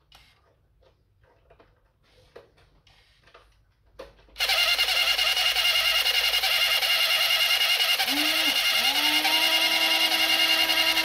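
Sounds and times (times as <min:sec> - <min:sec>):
toy electric motor whirring: 0:04.4 - 0:11.0.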